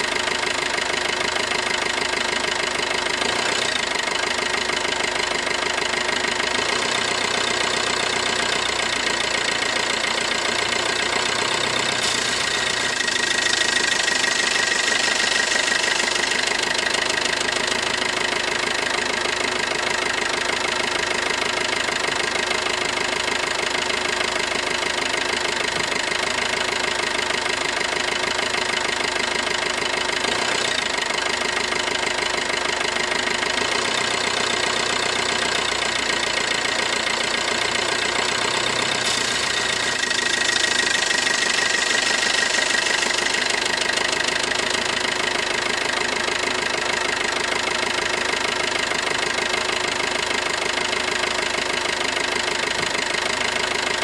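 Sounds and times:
toy car motor droning: 11.4s - 17.4s, 37.6s - 45.0s.

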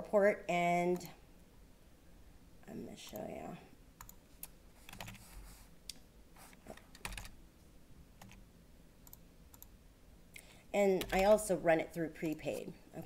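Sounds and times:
computer keyboard keystrokes: 4.9s - 5.2s, 6.8s - 7.3s, 8.2s - 8.4s.

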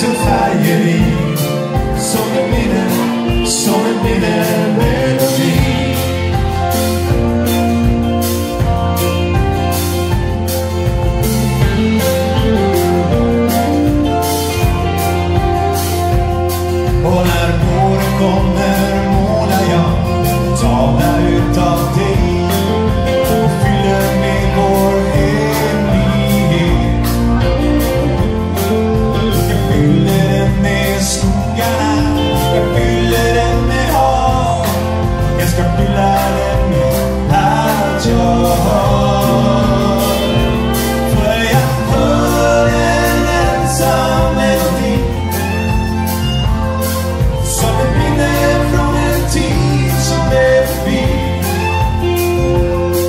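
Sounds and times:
live rock band playing: 0.0s - 53.0s
man singing lead vocal: 0.0s - 53.0s
steady drum beat: 0.0s - 53.0s.

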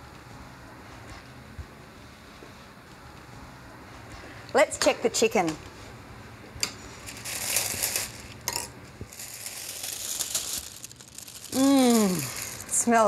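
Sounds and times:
plastic bag crinkling and tearing: 7.1s - 8.4s, 9.1s - 13.0s.

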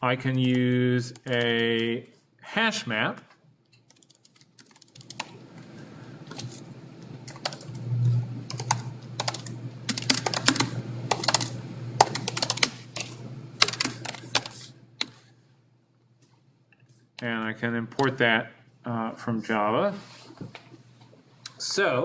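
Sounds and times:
keyboard typing clicks: 0.3s - 2.0s, 3.7s - 5.7s, 6.3s - 15.2s
low steady hum: 5.0s - 22.0s.

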